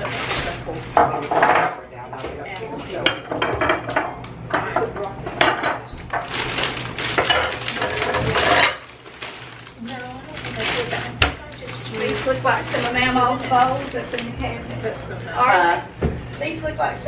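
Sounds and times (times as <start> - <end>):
dishes and utensils clinking: 0.0 - 8.9
faint voices: 9.6 - 17.0.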